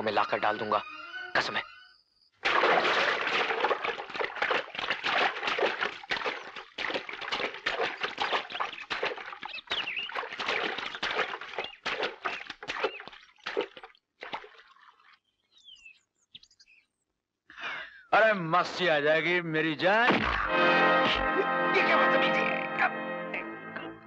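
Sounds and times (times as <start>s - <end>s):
swimmer splashing in pool: 2.4s - 15.1s.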